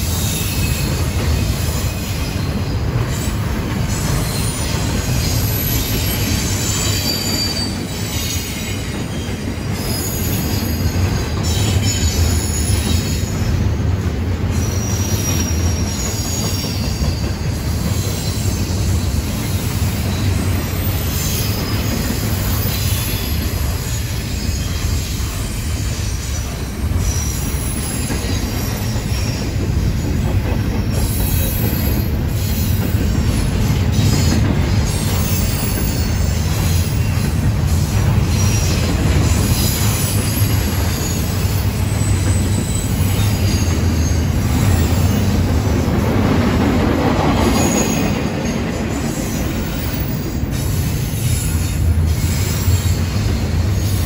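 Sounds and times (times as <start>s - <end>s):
freight train rumbling past: 0.0s - 54.0s
high-pitched wheel squeal: 0.1s - 13.6s, 14.5s - 29.6s, 38.2s - 45.5s, 47.4s - 54.0s.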